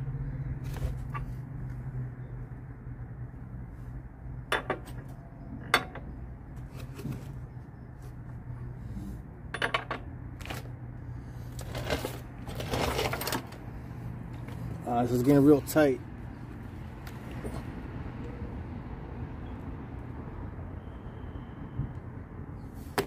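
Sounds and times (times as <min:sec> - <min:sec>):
rustling scrape: 0:11.6 - 0:13.6.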